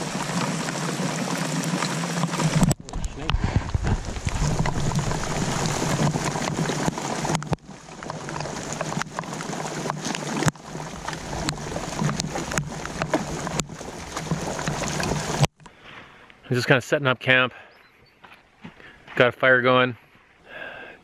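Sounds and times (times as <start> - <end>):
rain on lake water: 0.0 - 15.6
paddle strokes: 0.0 - 16.3.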